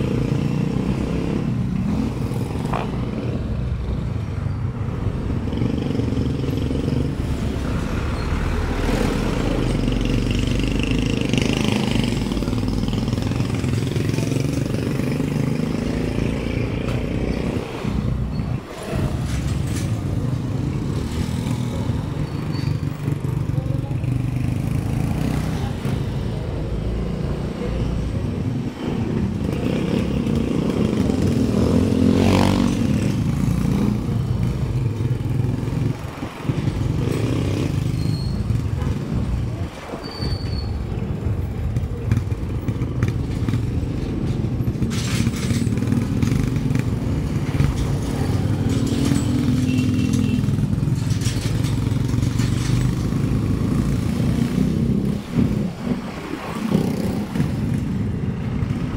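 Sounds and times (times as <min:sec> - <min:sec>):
motorcycles passing close by: 0:00.0 - 0:39.9, 0:40.8 - 0:58.9.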